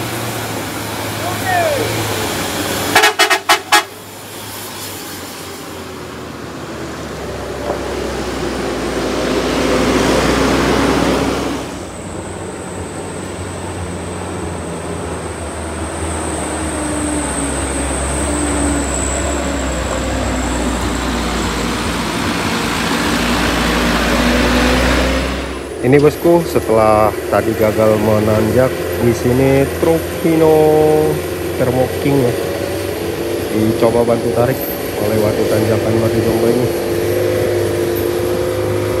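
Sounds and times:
low engine drone: 0.0s - 39.0s
rushing engine noise: 0.0s - 39.0s
truck engines running: 0.0s - 39.0s
vehicle horn toots: 2.9s - 4.0s.

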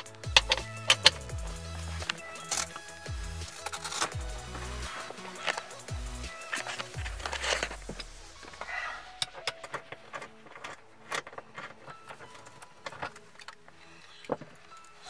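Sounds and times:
socket wrench clicking: 0.0s - 4.2s.

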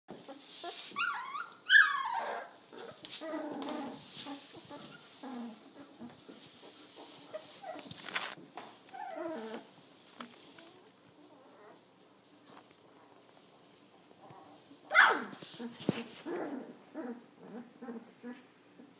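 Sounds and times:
puppies grunting and whining: 0.2s - 8.2s, 8.9s - 9.8s, 10.7s - 12.0s, 14.2s - 18.9s
puppies squealing: 1.0s - 3.6s.

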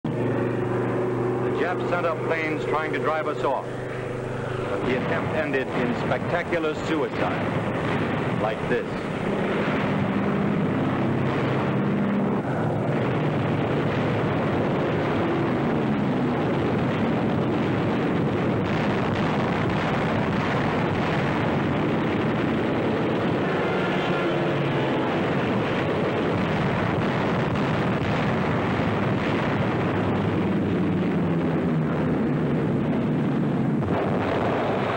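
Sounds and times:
loud steady rushing noise: 0.0s - 34.9s
propeller aircraft engine drone: 0.0s - 34.9s.

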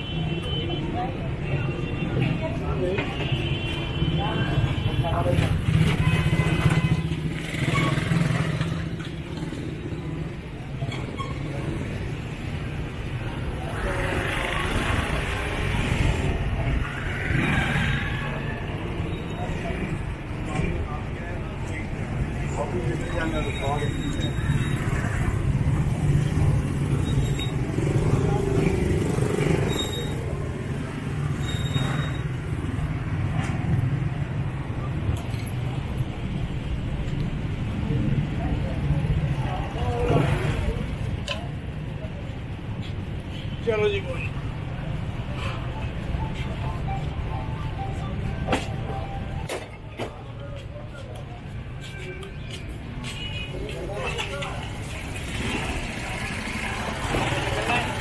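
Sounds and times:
motor rickshaws and motorcycles: 4.1s - 43.3s, 52.8s - 58.0s.

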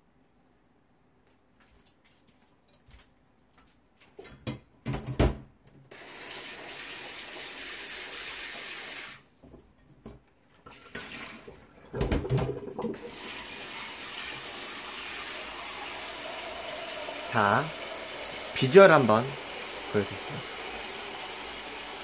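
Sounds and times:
kitchen tap running: 5.9s - 9.2s, 10.6s - 22.0s.

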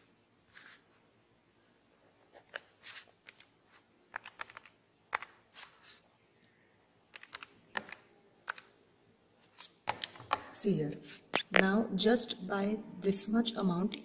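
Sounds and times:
pen strokes on paper: 0.5s - 0.9s.

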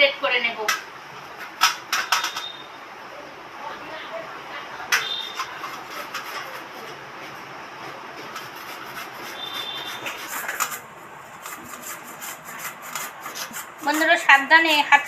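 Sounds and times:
pumpkin grated on metal grater: 5.4s - 6.8s, 8.3s - 15.0s.

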